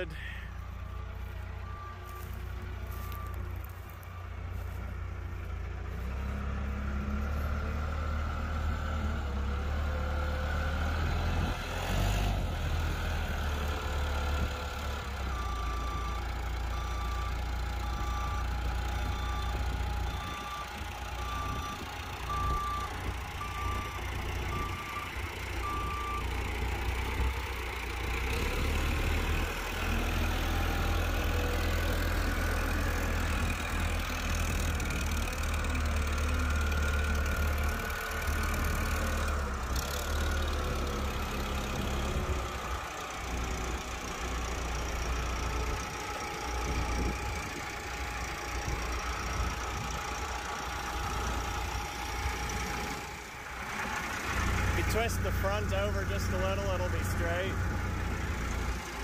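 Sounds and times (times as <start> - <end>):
forklift engine running: 0.0 - 59.0
reversing alarm beeps: 1.2 - 4.1, 15.4 - 26.4.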